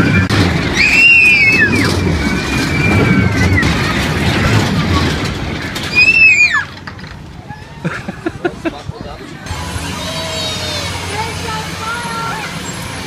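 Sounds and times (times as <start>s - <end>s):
children squealing: 0.0s - 5.1s, 5.8s - 6.8s, 7.4s - 8.1s, 9.9s - 11.1s
ride rumbling: 0.0s - 13.0s.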